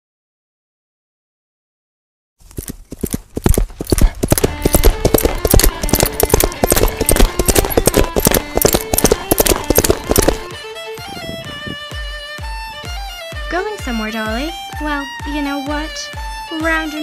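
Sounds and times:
horses galloping: 0:02.4 - 0:10.5.

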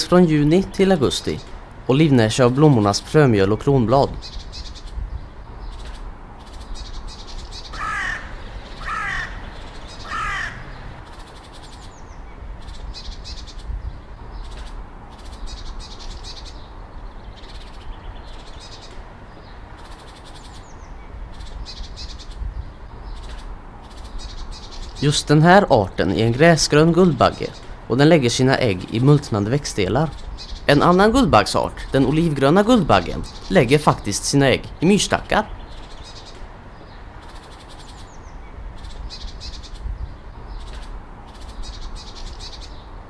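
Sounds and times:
low wind rumble: 0:00.0 - 0:43.0
small birds chirping: 0:00.0 - 0:43.0
crow cawing: 0:07.6 - 0:11.0.

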